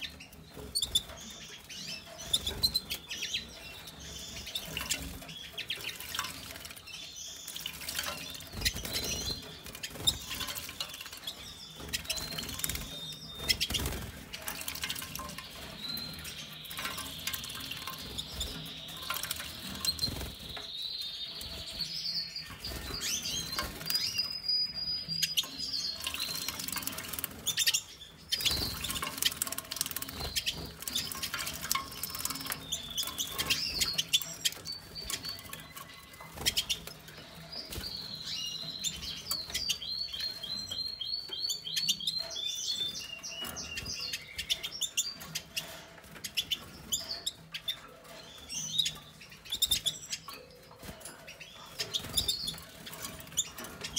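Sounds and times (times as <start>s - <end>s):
high finch chirps: 0.0s - 53.9s
water splashing in bird bath: 4.3s - 20.4s, 25.3s - 37.2s.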